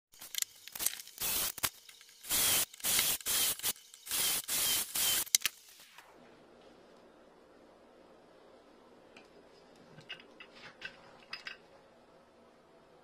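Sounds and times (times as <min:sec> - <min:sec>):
cordless drill boring into wood: 0:01.2 - 0:05.4
drill whine spinning down: 0:02.3 - 0:05.9.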